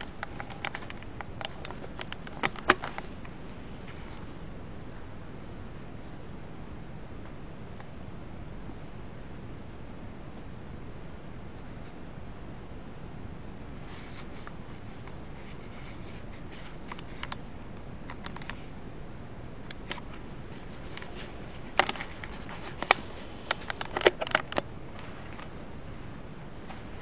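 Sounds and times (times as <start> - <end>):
steady hiss: 13.6 - 27.0.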